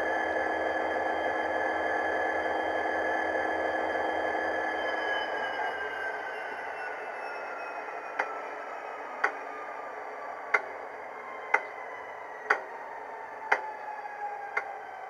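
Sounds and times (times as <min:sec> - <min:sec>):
sharp clicks: 0:12.5 - 0:12.7, 0:13.5 - 0:13.7.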